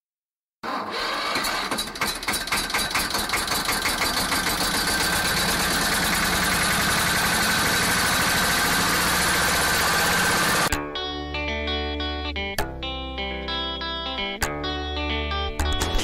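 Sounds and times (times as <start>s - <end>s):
engine starting up: 0.6s - 10.7s.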